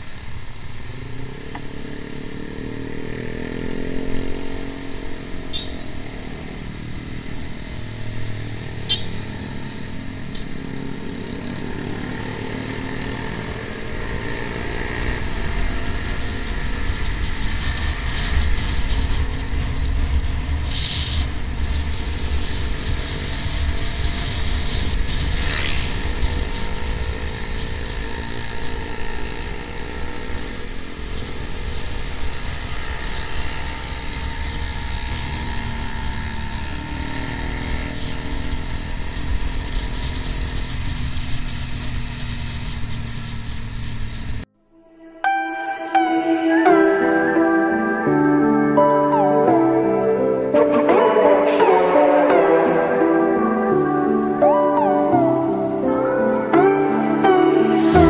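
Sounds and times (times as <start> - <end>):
motorcycle engine revving: 0.0 - 44.5, 50.5 - 58.0
wind rumble on microphone: 15.7 - 28.0.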